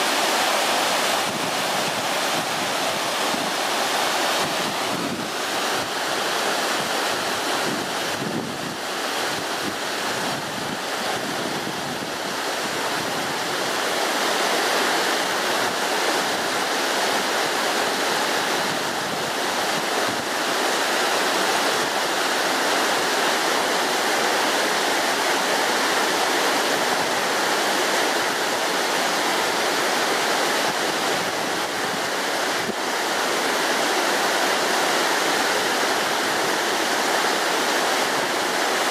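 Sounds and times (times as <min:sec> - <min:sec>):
water rushing over rocks: 0:00.0 - 0:38.9.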